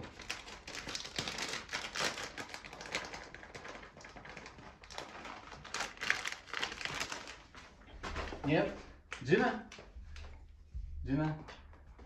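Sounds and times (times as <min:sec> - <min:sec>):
paper bag rustling: 0:00.0 - 0:08.4.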